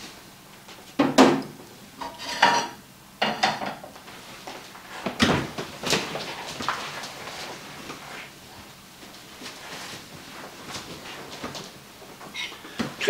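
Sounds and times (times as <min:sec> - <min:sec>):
pans and utensils clattering: 0:02.0 - 0:03.9.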